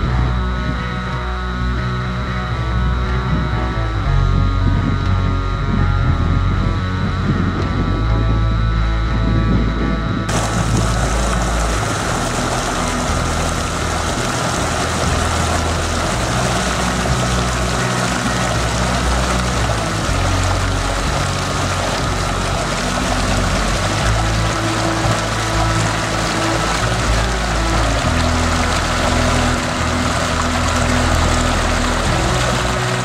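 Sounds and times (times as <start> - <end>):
background music: 0.0 - 33.0
water rushing over rocks: 10.3 - 33.0.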